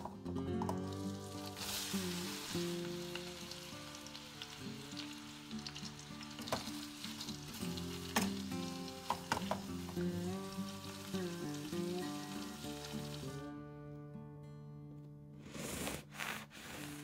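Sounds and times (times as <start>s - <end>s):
soft background music: 0.0s - 17.0s
prawns sizzling in butter: 0.8s - 13.4s.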